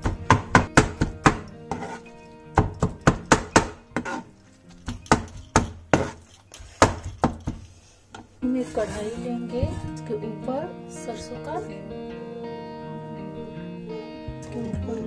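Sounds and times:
knife chopping on cutting board: 0.0 - 2.0, 2.6 - 4.2, 4.8 - 7.6
soft background music: 0.0 - 15.0.

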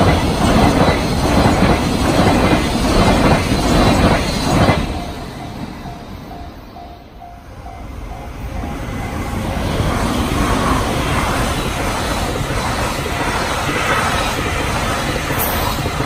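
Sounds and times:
freight train rushing past: 0.0 - 16.0
level-crossing alarm dings: 4.0 - 9.6.

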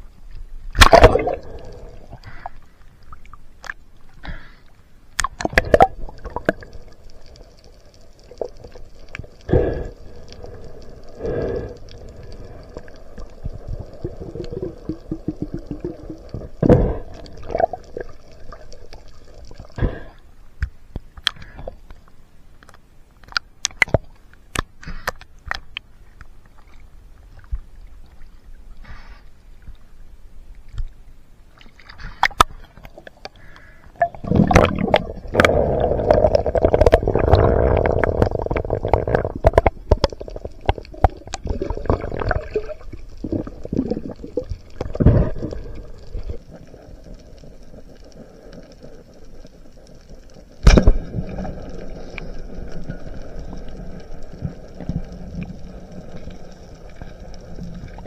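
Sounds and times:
water splashing and gurgling: 0.6 - 4.6, 5.2 - 20.2, 31.5 - 58.0.

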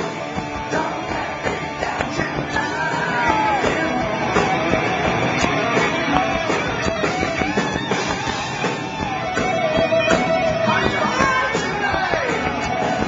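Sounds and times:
bass guitar: 0.0 - 13.0
drums: 0.0 - 13.0
electric guitar bending notes: 0.0 - 13.0.

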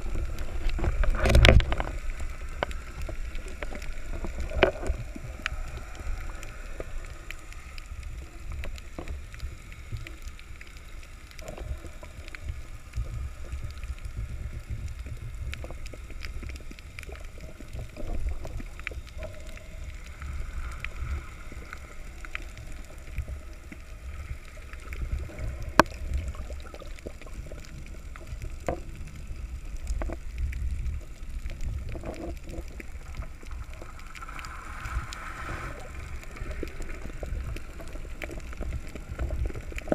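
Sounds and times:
muffled underwater rumble: 0.0 - 39.9
underwater clicks and taps: 0.1 - 7.9, 24.8 - 35.2.

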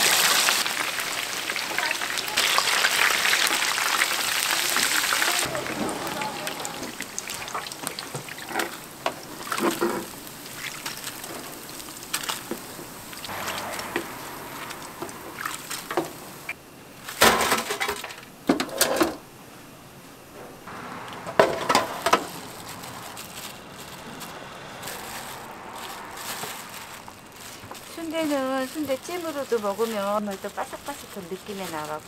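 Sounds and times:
steady background hiss: 3.9 - 32.0
kitchen utensils clinking: 5.4 - 11.5.

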